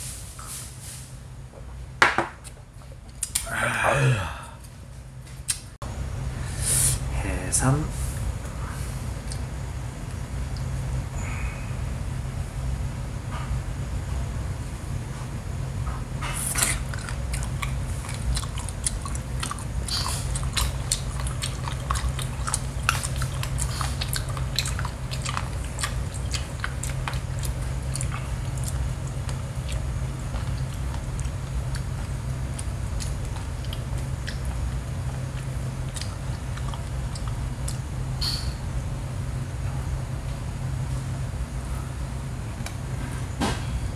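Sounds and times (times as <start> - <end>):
low hum: 0.0 - 43.9
person chewing: 16.3 - 38.6.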